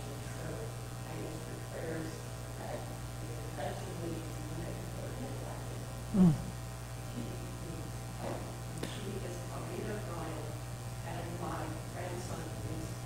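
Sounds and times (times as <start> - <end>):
electrical mains hum: 0.0 - 13.0
voice falling in pitch: 6.2 - 6.5.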